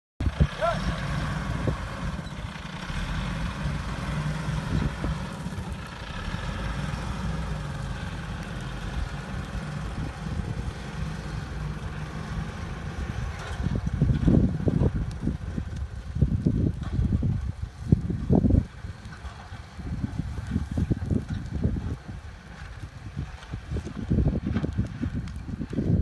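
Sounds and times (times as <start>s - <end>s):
truck engine low rumble: 0.2s - 26.0s.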